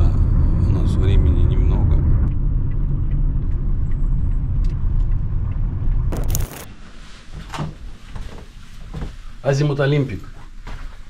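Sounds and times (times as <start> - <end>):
car road rumble: 0.0 - 6.7.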